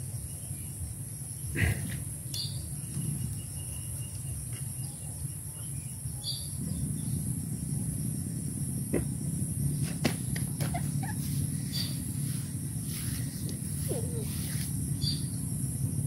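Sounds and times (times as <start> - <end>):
low rumble: 0.0 - 16.0
bird chirps: 1.4 - 7.4, 10.5 - 15.7
high-pitched insect drone: 2.1 - 16.0.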